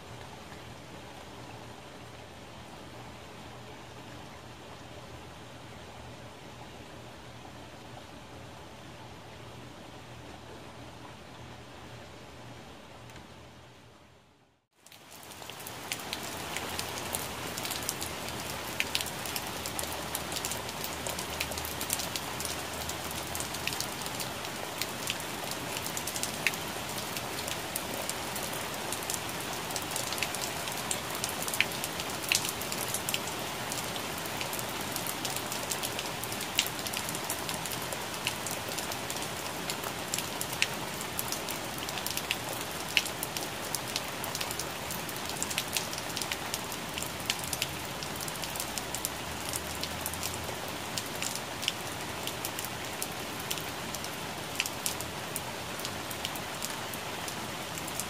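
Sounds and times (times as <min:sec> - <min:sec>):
raindrops ticking on leaves: 0:14.7 - 0:58.0.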